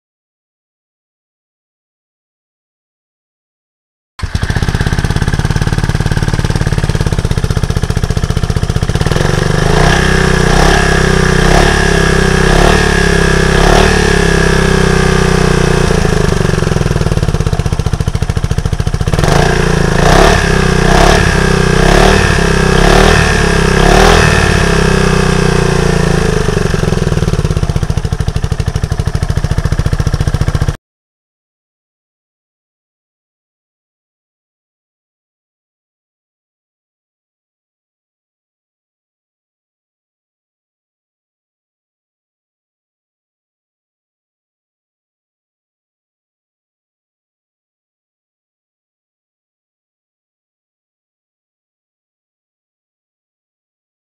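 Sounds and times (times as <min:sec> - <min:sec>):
scooter engine idling: 0:04.2 - 0:30.8.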